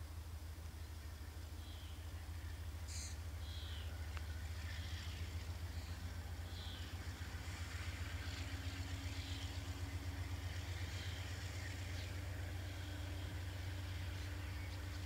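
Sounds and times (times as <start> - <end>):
distant locomotive engine drone: 0.0 - 15.0
faint bird chirps: 0.8 - 7.0.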